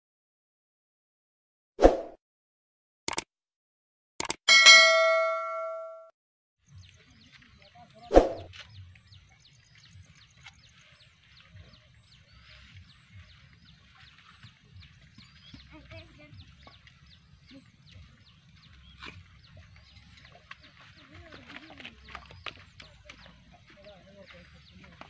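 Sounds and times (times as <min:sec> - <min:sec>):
birds chirping: 0:06.6 - 0:25.0.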